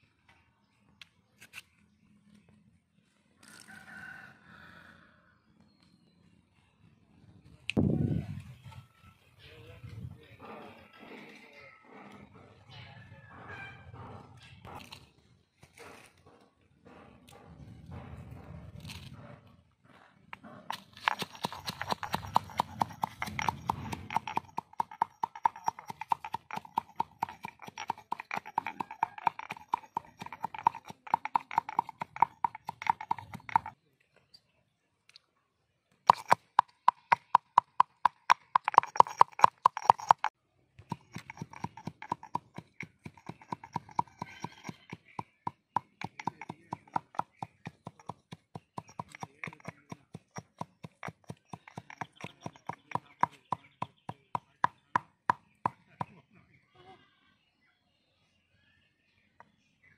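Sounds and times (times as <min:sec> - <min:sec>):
pestle pounding in stone mortar: 0:20.6 - 0:33.8, 0:36.1 - 0:56.1.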